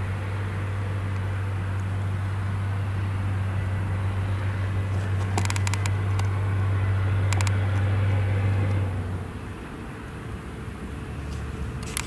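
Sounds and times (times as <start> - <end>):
farm machinery engine drone: 0.0 - 12.0
rapid clicking rattle: 5.3 - 6.3, 11.8 - 12.0.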